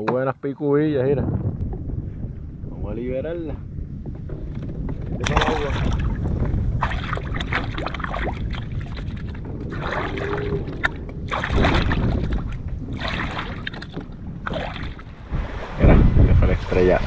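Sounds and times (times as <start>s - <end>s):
low wind rumble on microphone: 0.5s - 17.0s
water splashing and trickling: 4.2s - 17.0s.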